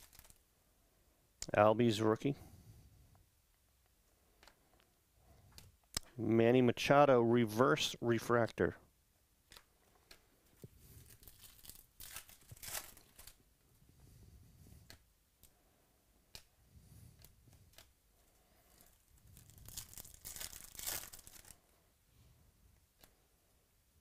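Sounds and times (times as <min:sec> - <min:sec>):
foil wrapper crinkling and tearing: 0:00.0 - 0:00.4, 0:10.9 - 0:13.4, 0:18.7 - 0:21.6.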